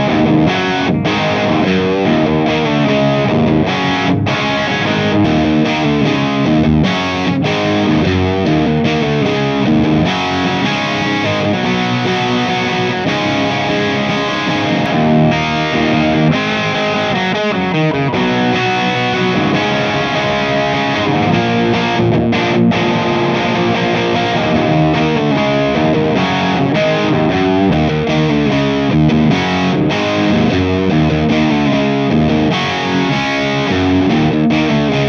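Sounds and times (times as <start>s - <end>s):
distorted electric guitar riff: 0.0s - 35.0s.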